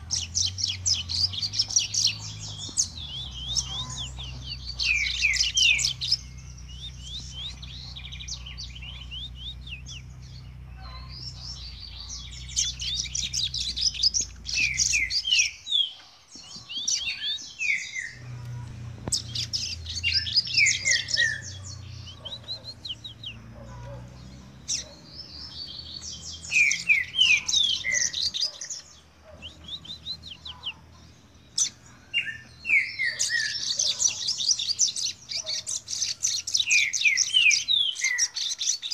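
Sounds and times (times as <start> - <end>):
caged bird singing trills: 0.0 - 38.9
steady low hum: 18.0 - 26.5.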